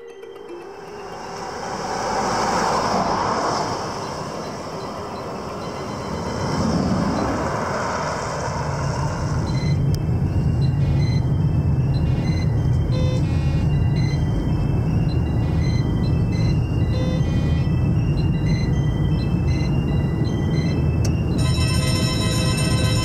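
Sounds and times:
velomobile rushing past: 0:00.8 - 0:12.6
car interior road rumble: 0:01.1 - 0:23.0.

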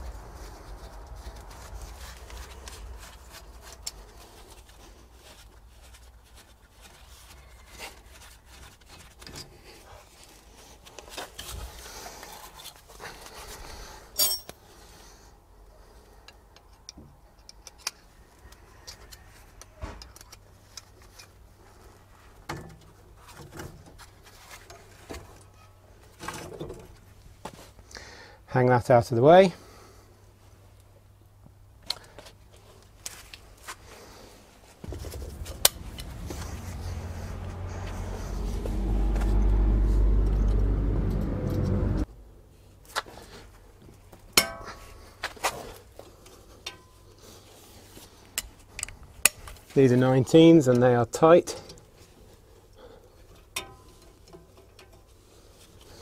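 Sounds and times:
metallic clicks of hand tools: 0:16.3 - 0:18.0.

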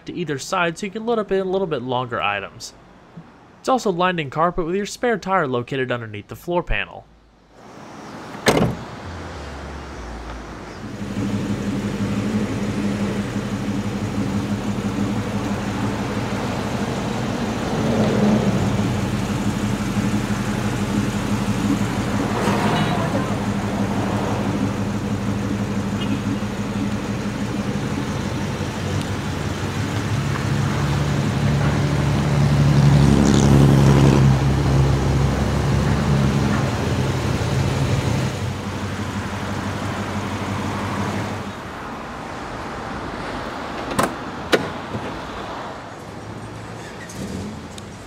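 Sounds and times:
traffic noise: 0:00.0 - 0:05.4, 0:06.7 - 0:48.0
car door handle clicks: 0:08.3 - 0:08.8, 0:43.8 - 0:45.2
vehicle engine running: 0:10.2 - 0:41.7.

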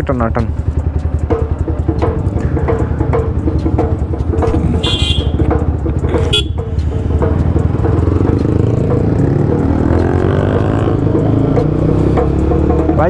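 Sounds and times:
motorcycle engine running: 0:00.0 - 0:13.0
vehicle horn tooting: 0:04.8 - 0:05.5, 0:06.1 - 0:06.6.

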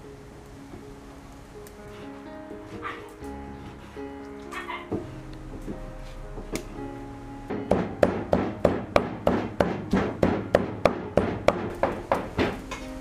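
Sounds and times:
background music: 0:00.0 - 0:13.0
cleaver chopping on wooden block: 0:07.5 - 0:12.6.

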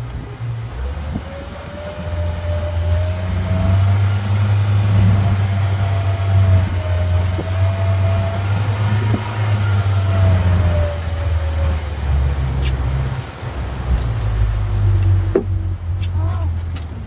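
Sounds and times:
thin wavering whine: 0:00.0 - 0:15.9
boat motor humming: 0:00.0 - 0:17.0.

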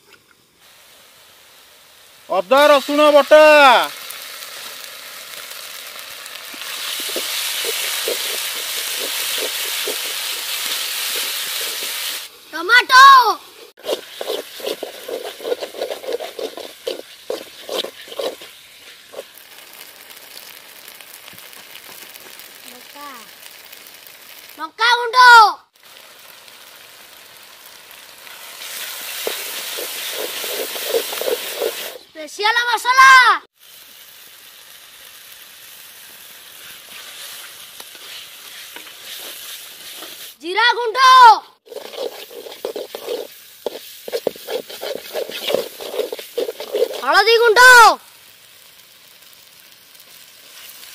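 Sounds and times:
food sizzling in oil: 0:00.4 - 0:50.9
spatula scraping a pan: 0:06.6 - 0:19.4, 0:28.8 - 0:32.0, 0:36.8 - 0:40.4, 0:41.6 - 0:47.6.

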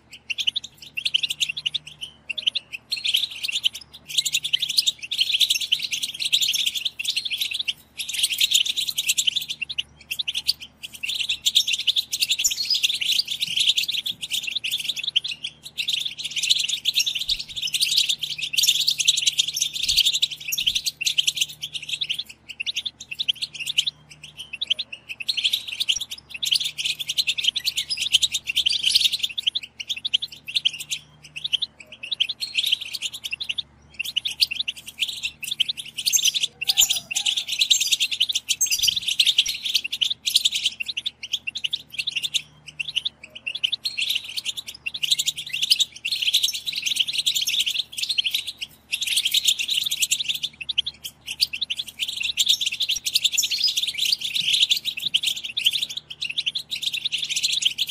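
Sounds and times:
finches twittering chatter: 0:00.0 - 0:57.9.

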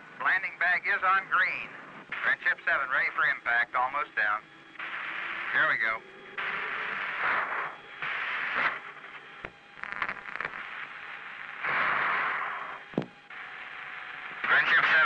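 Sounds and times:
radio static hiss: 0:00.0 - 0:15.0
radio crackles: 0:00.2 - 0:15.0.

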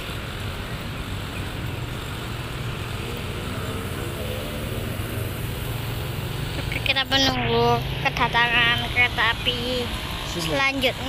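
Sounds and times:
engine speeding up: 0:00.0 - 0:11.0
road traffic engines rumbling: 0:00.0 - 0:11.0.

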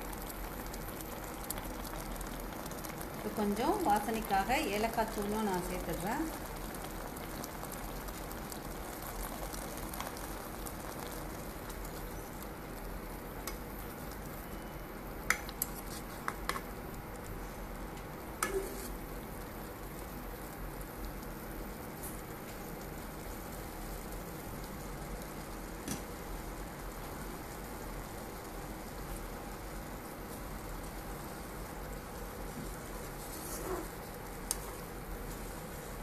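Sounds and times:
boiling water bubbling: 0:00.0 - 0:36.0.

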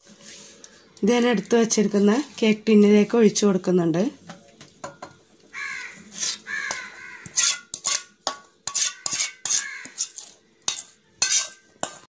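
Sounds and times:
spoon scraping metal bowl: 0:06.0 - 0:12.0.

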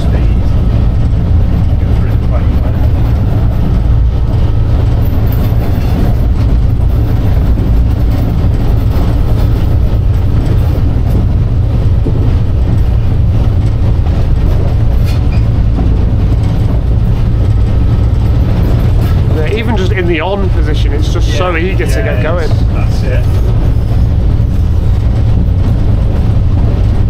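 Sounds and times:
locomotive diesel engine rumble: 0:00.0 - 0:27.0
train wheels on rails: 0:00.0 - 0:27.0.

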